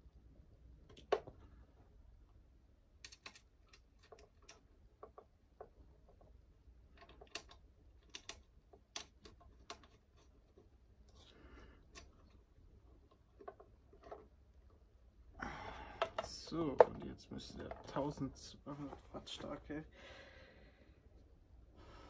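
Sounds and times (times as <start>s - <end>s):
small clicks of terminal nuts: 3.0s - 5.7s, 6.9s - 10.0s.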